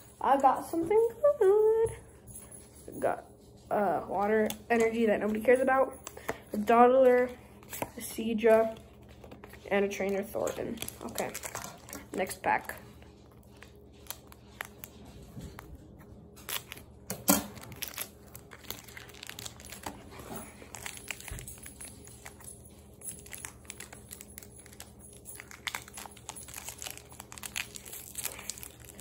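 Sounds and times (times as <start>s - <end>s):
scissors cutting foil wrapper: 4.0s - 15.0s, 16.3s - 29.0s
foil wrapper crinkling and tearing: 7.5s - 15.7s, 16.3s - 29.0s.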